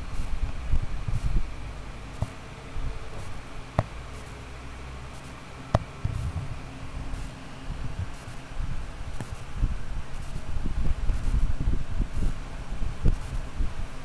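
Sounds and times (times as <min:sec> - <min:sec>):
fur rubbing on microphone: 0:06.0 - 0:08.5.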